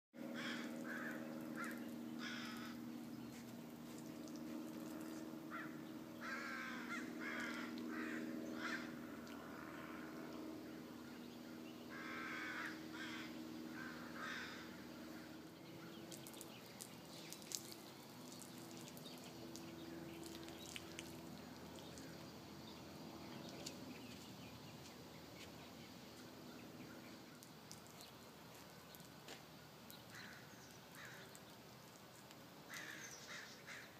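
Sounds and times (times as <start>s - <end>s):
faint low hum: 0.2s - 33.9s
crows cawing: 0.3s - 2.9s, 4.3s - 10.8s, 11.4s - 15.4s, 30.1s - 31.4s, 32.7s - 33.9s.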